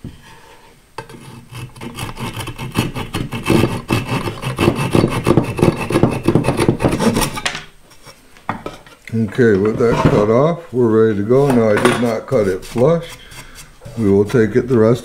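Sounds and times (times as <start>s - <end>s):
hand saw cutting wood: 1.0s - 7.4s, 12.0s - 15.0s.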